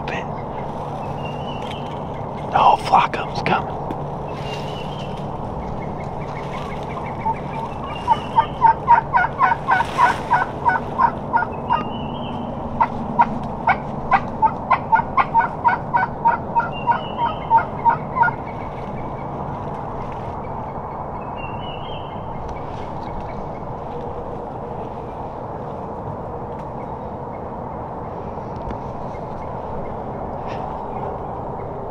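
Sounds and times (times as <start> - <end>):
turkey yelping: 7.2 - 11.9, 12.8 - 18.4.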